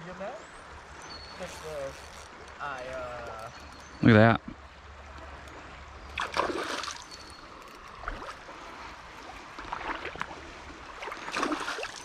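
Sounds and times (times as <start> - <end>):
fish splashing in water: 6.2 - 7.4, 9.6 - 12.0.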